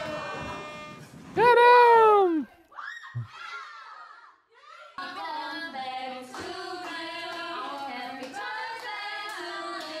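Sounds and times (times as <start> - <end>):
women singing together: 5.0 - 10.0.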